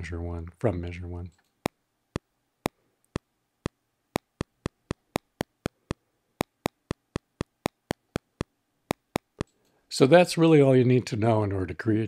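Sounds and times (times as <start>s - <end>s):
metronome clicks: 4.2s - 9.5s.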